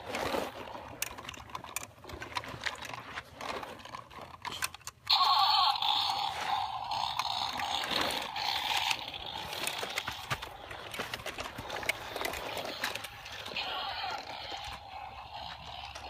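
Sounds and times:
plastic toys rattling in dirt: 0.0 - 16.0.

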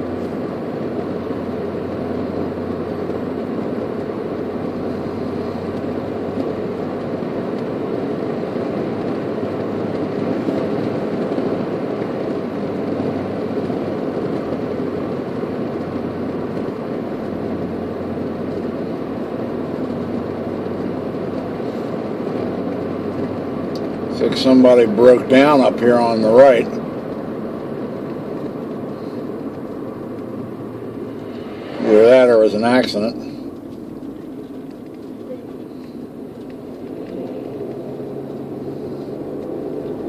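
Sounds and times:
car road and engine noise: 0.0 - 40.0.

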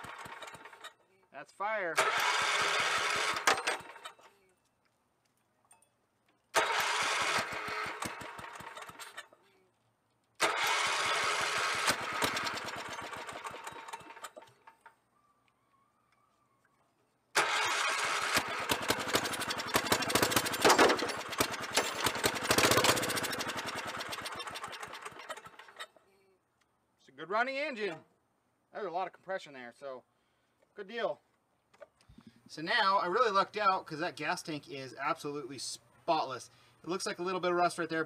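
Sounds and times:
engine cranking by electric starter: 0.0 - 1.0, 2.0 - 4.3, 6.5 - 9.3, 10.4 - 14.9, 17.3 - 25.9.

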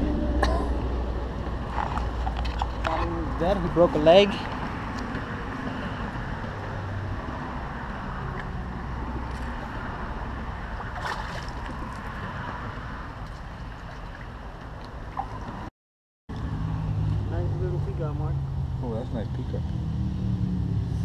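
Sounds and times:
fish splashing at water surface: 10.7 - 12.2.

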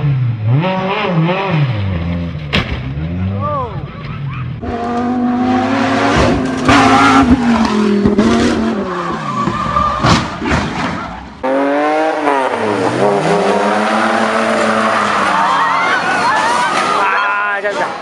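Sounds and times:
sports car engine revving: 4.6 - 9.5, 11.4 - 15.5.

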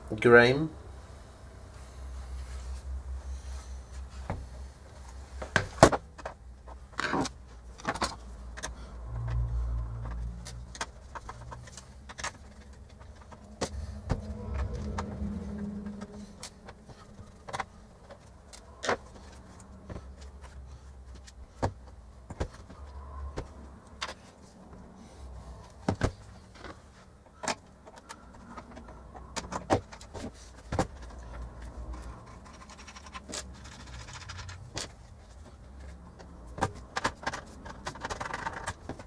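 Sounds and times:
clicks and knocks of metal chassis: 25.8 - 39.0.

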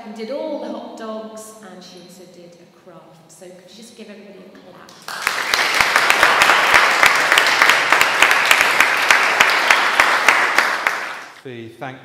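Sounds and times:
close hands clapping sharply: 4.9 - 11.4
congregation applauding: 4.9 - 11.4.

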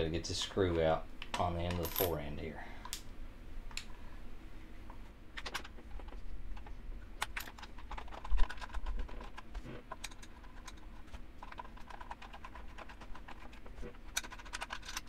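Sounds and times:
screw and parts handled: 5.4 - 15.0.

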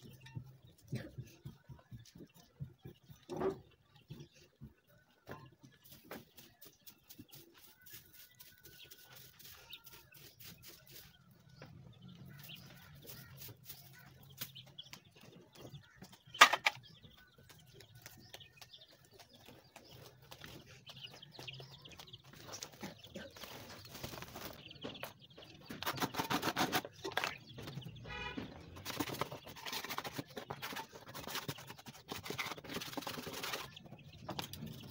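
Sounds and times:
chickens clucking: 0.0 - 34.9.

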